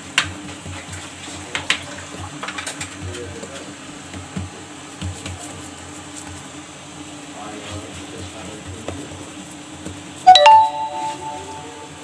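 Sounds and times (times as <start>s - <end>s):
hands patting dough: 0.0s - 6.6s, 7.8s - 10.2s.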